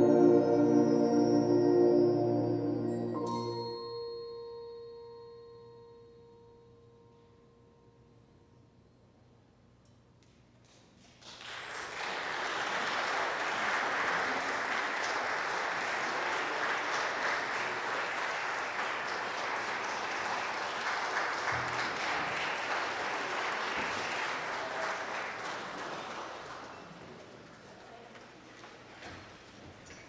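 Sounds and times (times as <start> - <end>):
audience applauding: 11.1 - 28.0.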